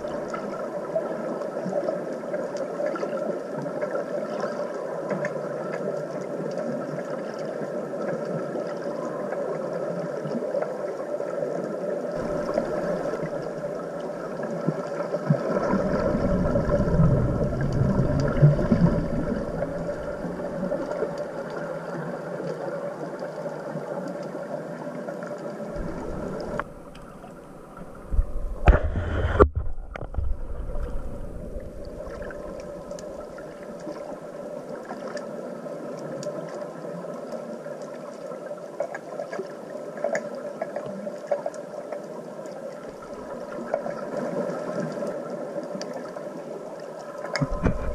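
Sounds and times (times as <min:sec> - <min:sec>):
underwater bubbling rush: 0:00.0 - 0:47.9
underwater boat engine hum: 0:12.2 - 0:23.0, 0:25.4 - 0:34.8.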